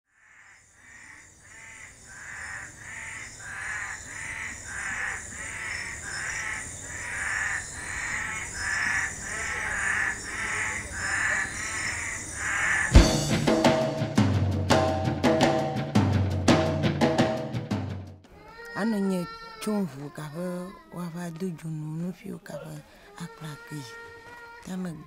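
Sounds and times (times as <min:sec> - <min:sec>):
bird calling: 0:00.7 - 0:13.8.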